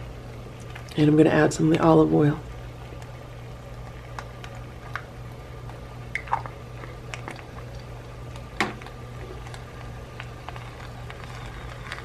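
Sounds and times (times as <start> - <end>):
steady low hum: 0.0 - 12.0
pops and crackles from pot: 3.7 - 7.7, 8.3 - 12.0.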